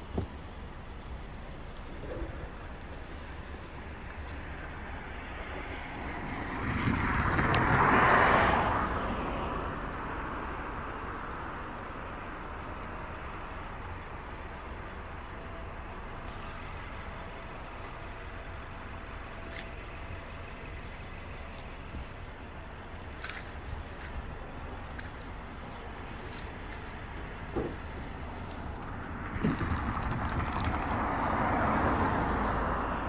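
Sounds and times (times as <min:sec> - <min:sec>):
vehicle driving past: 0:26.6 - 0:33.0.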